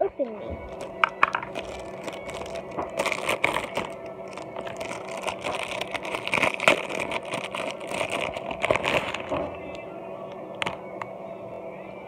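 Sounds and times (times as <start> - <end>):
plastic packaging rustling: 0.5 - 9.8, 10.5 - 10.9
small knocks on plastic: 1.0 - 1.6.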